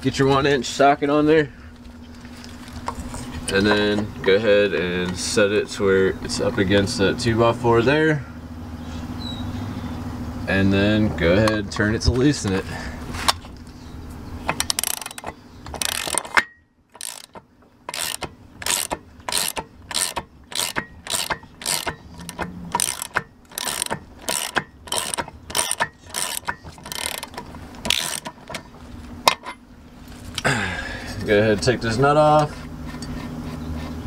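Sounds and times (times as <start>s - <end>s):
ratchet wrench clicking: 14.5s - 28.6s.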